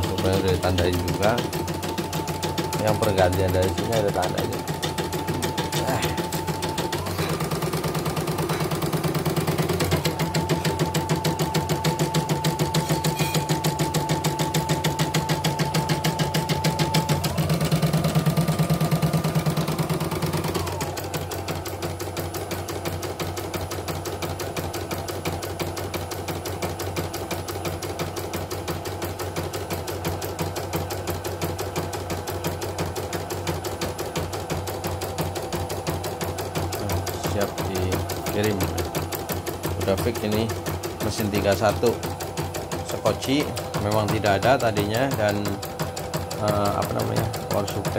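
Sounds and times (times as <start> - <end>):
motor whine: 0.0 - 22.5
embroidery machine needle strokes: 0.0 - 24.2, 24.8 - 47.9.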